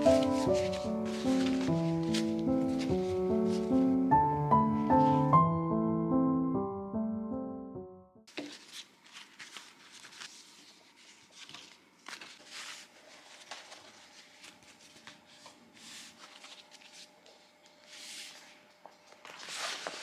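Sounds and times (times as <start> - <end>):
stiff cloth wraps rustling: 0.1 - 3.8.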